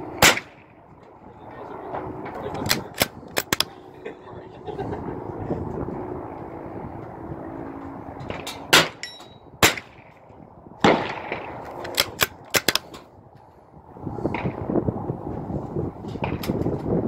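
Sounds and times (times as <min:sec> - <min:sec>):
rifle shots: 0:00.2 - 0:00.6, 0:10.8 - 0:12.8.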